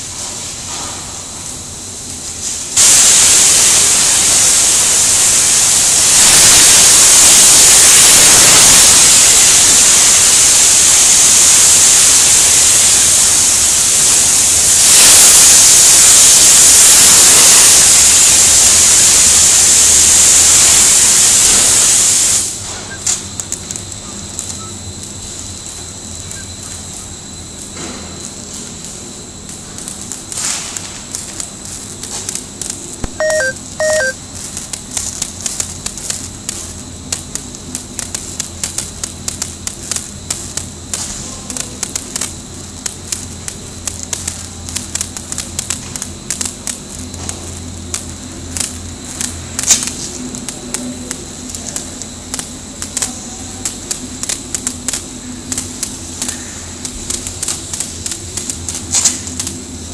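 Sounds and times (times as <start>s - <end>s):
steady machine hum: 0.0s - 59.9s
short electronic beeps: 33.1s - 34.2s.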